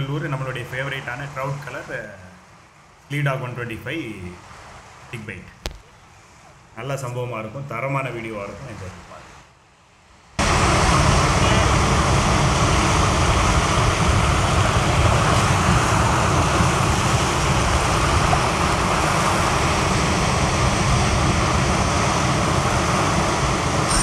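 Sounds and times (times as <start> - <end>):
wind rumbling on microphone: 10.4 - 24.0.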